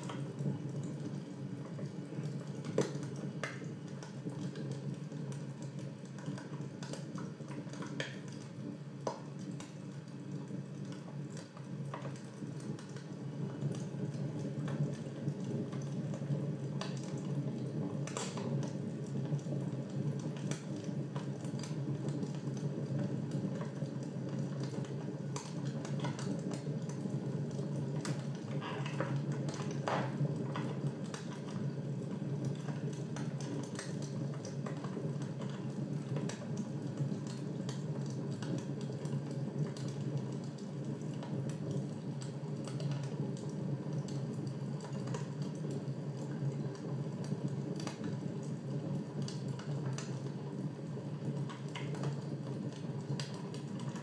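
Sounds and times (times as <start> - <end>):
fire crackling: 0.0 - 54.0.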